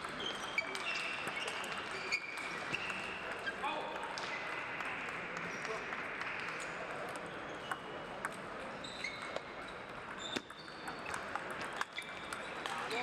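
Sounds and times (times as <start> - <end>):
table tennis balls bouncing: 0.0 - 13.0
short high squeaks: 8.8 - 11.2.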